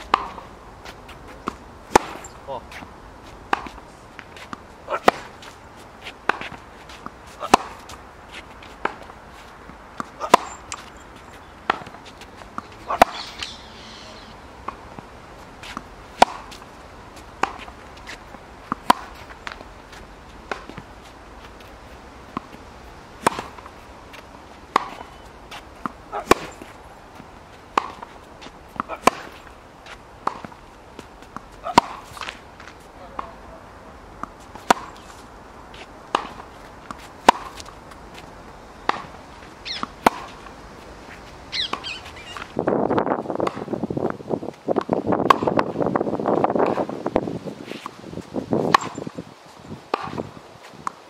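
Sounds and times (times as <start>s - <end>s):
tennis racket hitting ball: 0.0s - 0.5s, 1.1s - 2.9s, 3.5s - 19.7s, 20.4s - 20.9s, 23.2s - 33.4s, 34.2s - 40.5s, 43.4s - 43.7s, 44.8s - 45.7s, 48.6s - 49.1s, 49.9s - 51.0s.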